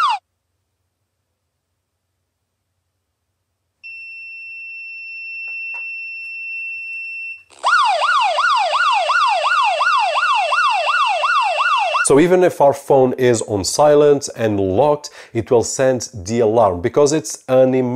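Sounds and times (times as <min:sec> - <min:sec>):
wailing siren alert: 0:00.0 - 0:00.2, 0:07.5 - 0:12.2
steady high alarm beep: 0:03.8 - 0:07.4.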